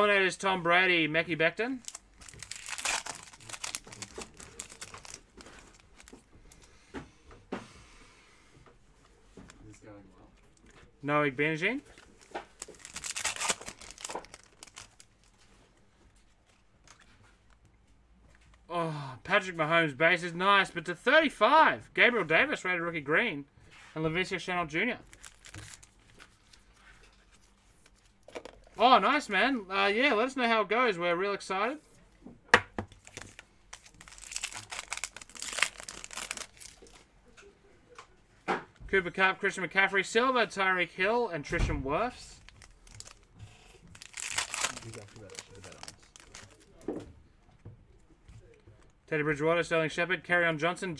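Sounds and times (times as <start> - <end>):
foil wrapper crinkling and tearing: 1.6 - 6.6, 11.9 - 15.4, 25.0 - 26.6, 32.9 - 37.1, 42.4 - 43.3, 43.9 - 46.8
cards tapping and rustling: 1.8 - 7.1, 11.9 - 15.1, 25.1 - 28.8, 32.5 - 37.0.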